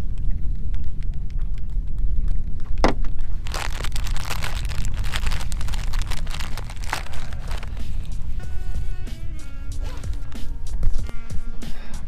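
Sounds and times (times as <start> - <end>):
steady low rumble: 0.0 - 11.1
crinkling and rustling gear: 3.3 - 7.9.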